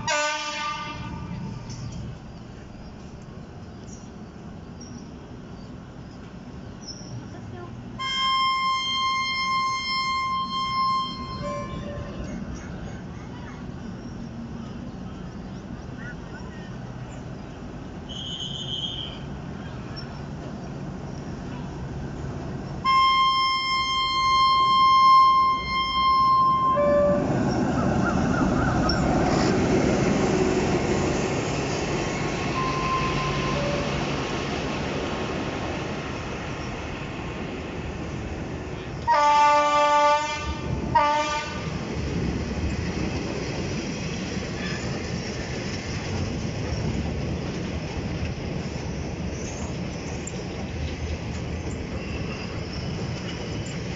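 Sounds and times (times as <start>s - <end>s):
locomotive horn blasts: 0.0s - 1.5s, 8.0s - 12.3s, 22.8s - 27.3s, 32.5s - 34.0s, 39.1s - 41.8s
train carriages rumbling over bridge: 0.0s - 53.9s.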